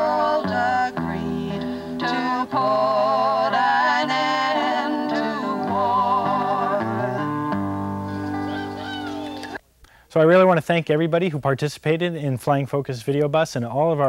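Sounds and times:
held instrumental chords: 0:00.0 - 0:09.6
person singing with vibrato: 0:00.0 - 0:09.6.

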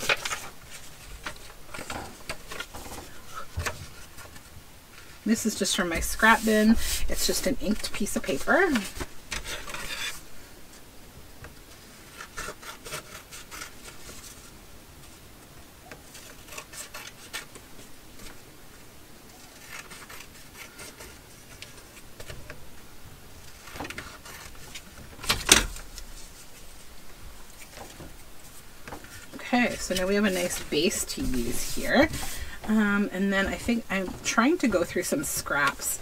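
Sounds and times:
paper rustling and tearing: 0:00.0 - 0:04.5, 0:06.0 - 0:10.3, 0:11.7 - 0:14.6, 0:16.0 - 0:18.4, 0:19.3 - 0:22.4, 0:23.4 - 0:26.9.

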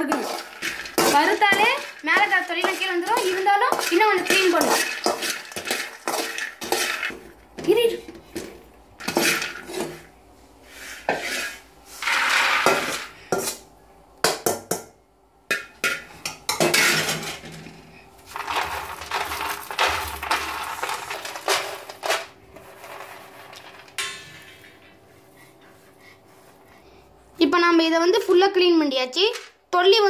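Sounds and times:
peanuts rattling on metal tray: 0:00.0 - 0:07.2, 0:18.3 - 0:24.4.

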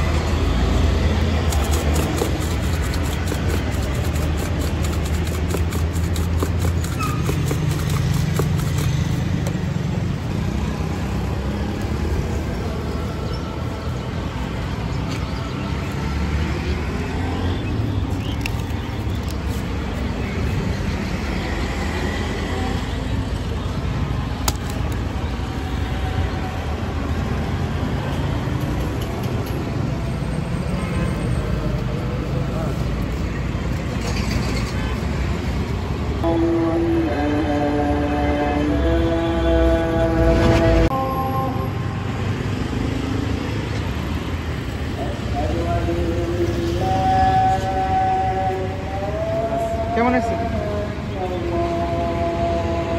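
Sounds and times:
road traffic rumble: 0:00.0 - 0:52.9.

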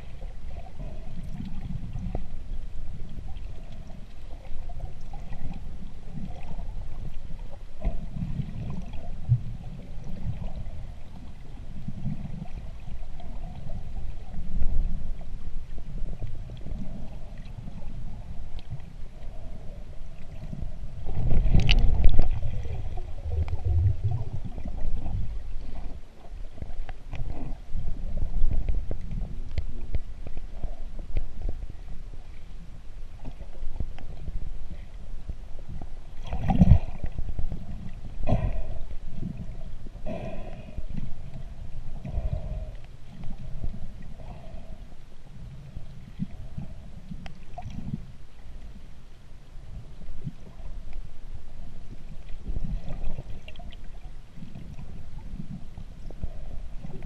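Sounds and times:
muffled underwater rumble: 0:00.0 - 0:57.0
faint ticks: 0:00.8 - 0:11.4, 0:12.0 - 0:22.4, 0:28.2 - 0:32.5, 0:33.2 - 0:35.0, 0:38.3 - 0:48.9.

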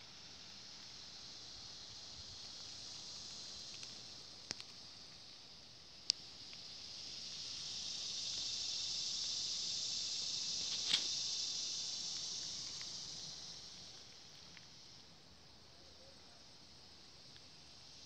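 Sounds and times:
cicada buzzing: 0:00.0 - 0:18.0
sharp click: 0:10.6 - 0:11.1.

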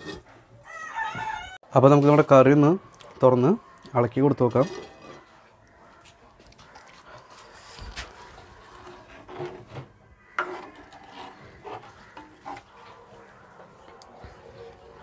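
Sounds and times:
spatula scraping clay pot: 0:00.0 - 0:00.4, 0:04.3 - 0:05.4, 0:07.2 - 0:13.4.

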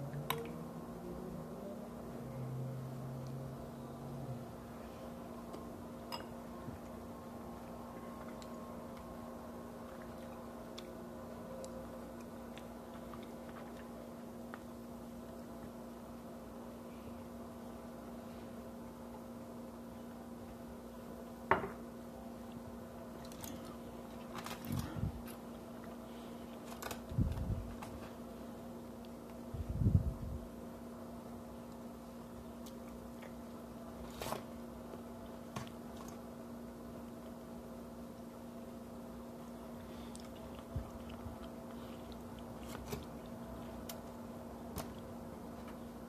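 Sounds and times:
eating and handling food: 0:00.0 - 0:46.0
steady low hum: 0:00.0 - 0:46.0
person chewing food: 0:11.7 - 0:15.8, 0:22.4 - 0:27.0, 0:32.6 - 0:33.6, 0:39.5 - 0:44.2.

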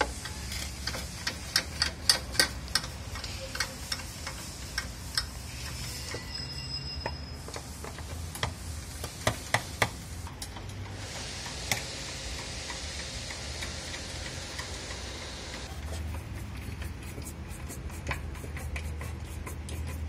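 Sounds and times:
ratcheting wrench clicking: 0:00.0 - 0:05.4.

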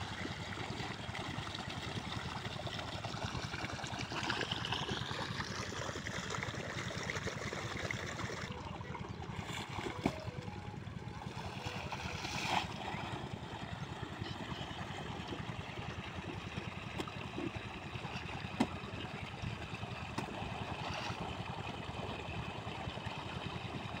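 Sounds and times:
water gushing from hose: 0:00.0 - 0:08.5, 0:20.0 - 0:24.0
water pump engine running: 0:00.0 - 0:24.0.

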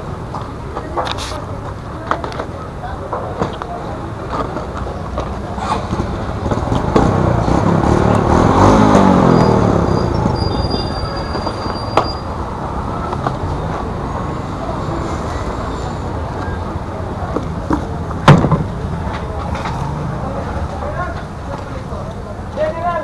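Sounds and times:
vehicle engine passing by: 0:05.4 - 0:17.3, 0:18.7 - 0:22.1
thin high squeal: 0:09.3 - 0:12.3.

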